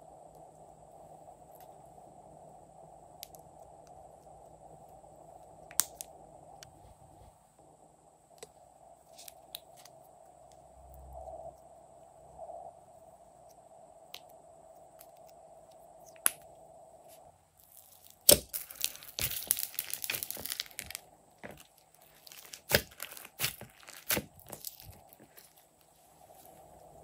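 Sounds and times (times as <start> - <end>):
low steady hum: 0.0 - 27.0
slime crackling and popping: 17.6 - 25.5
slime snapping: 22.3 - 24.9.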